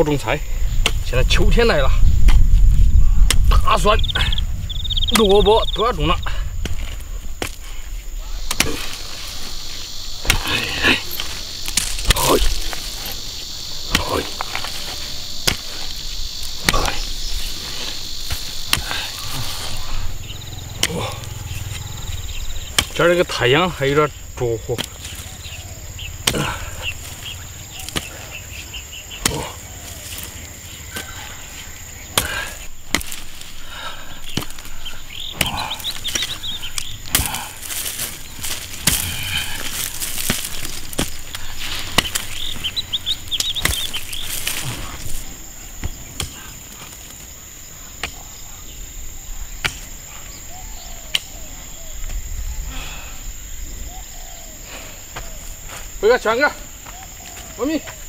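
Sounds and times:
insect chorus: 0.0 - 58.0
hoe chopping into dry soil: 0.8 - 1.2, 3.2 - 3.7, 6.5 - 7.7, 8.4 - 13.2, 13.8 - 21.9, 22.6 - 23.2, 24.6 - 28.4, 29.1 - 30.3, 30.9 - 31.3, 32.0 - 47.3, 48.0 - 48.4, 49.6 - 49.9
earth clods scattering: 4.9 - 23.2, 32.0 - 47.3.

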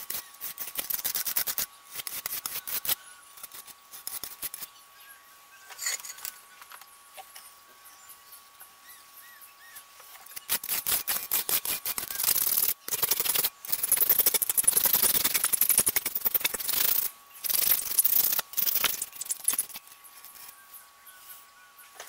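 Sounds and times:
sandpaper scraping on metal: 0.0 - 4.7, 10.4 - 20.6.

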